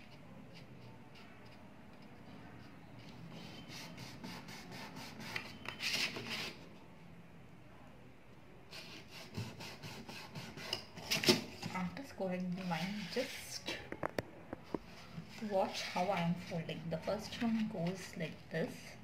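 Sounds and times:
scoring tool scraping cardstock: 0:08.7 - 0:11.3, 0:12.6 - 0:13.5, 0:14.9 - 0:16.6.

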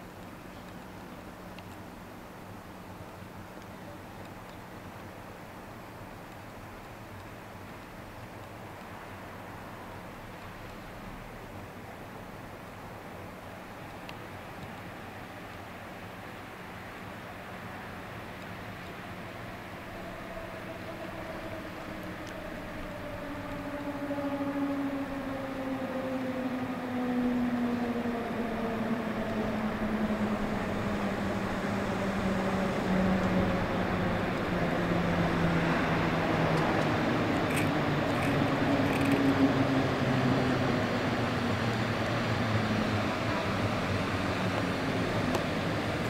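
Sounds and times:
electric locomotive whining: 0:18.7 - 0:46.0.

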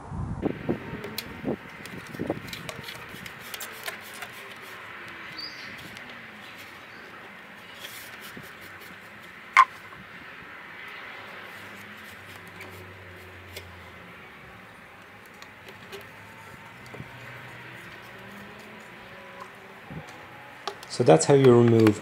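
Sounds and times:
clicks and rubbing: 0:01.0 - 0:09.9, 0:14.9 - 0:22.0.

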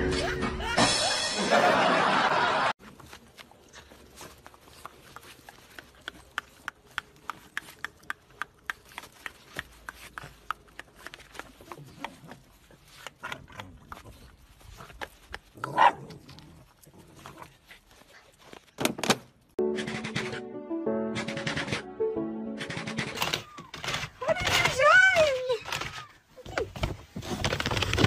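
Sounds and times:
sharp clicks and taps: 0:04.8 - 0:12.2.

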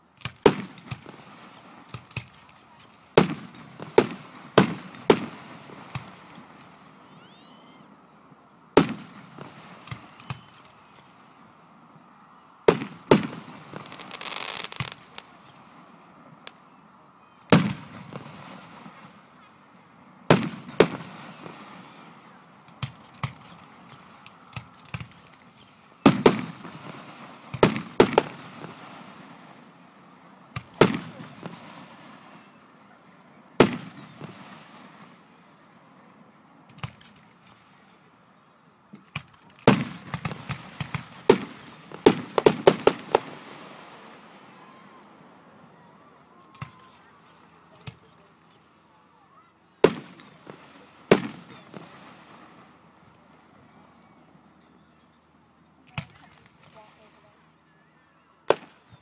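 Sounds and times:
firework shells bursting: 0:12.7 - 0:15.3.

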